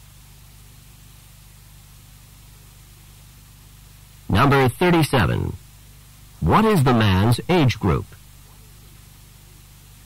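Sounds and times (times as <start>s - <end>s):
steady hiss: 0.0s - 10.0s
low hum: 6.3s - 8.3s.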